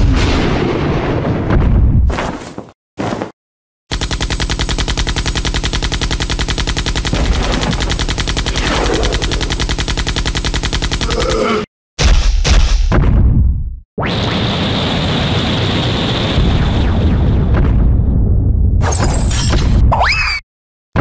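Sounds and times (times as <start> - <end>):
cartoon machine-gun fire: 3.9 - 13.2.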